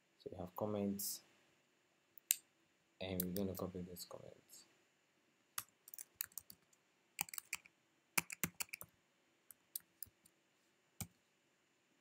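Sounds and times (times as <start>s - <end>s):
computer keyboard typing: 5.9s - 6.6s, 7.2s - 8.9s.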